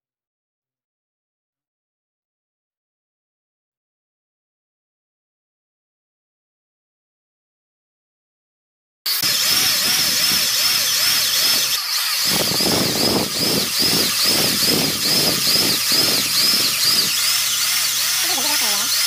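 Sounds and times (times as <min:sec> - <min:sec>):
drill bit grinding steel: 0:09.1 - 0:19.0
drill motor whine: 0:09.1 - 0:19.0.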